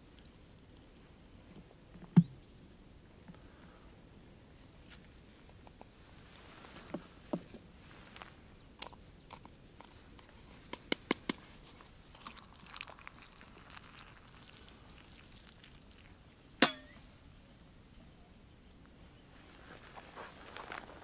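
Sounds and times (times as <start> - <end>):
hot water pouring into cup: 12.1 - 16.2
sharp knock with ring: 16.6 - 17.0.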